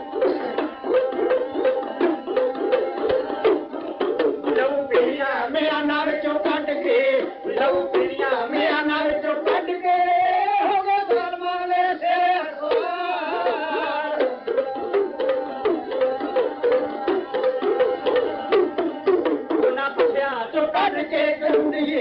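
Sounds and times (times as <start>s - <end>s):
hand drum strokes: 0.0s - 5.3s
person singing: 0.0s - 22.0s.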